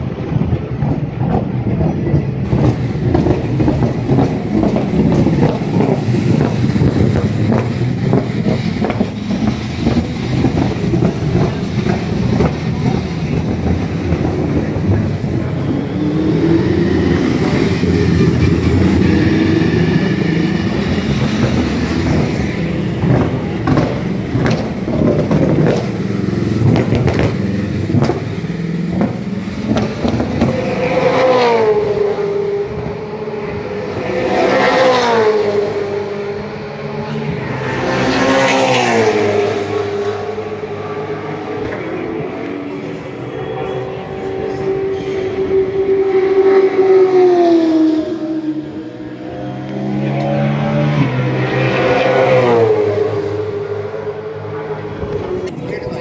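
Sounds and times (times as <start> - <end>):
race car engines rumbling: 0.0 - 56.0.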